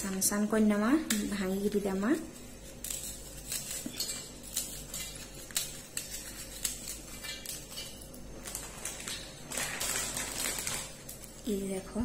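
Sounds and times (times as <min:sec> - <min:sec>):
biscuit bits clinking in steel bowl: 0:02.7 - 0:11.4.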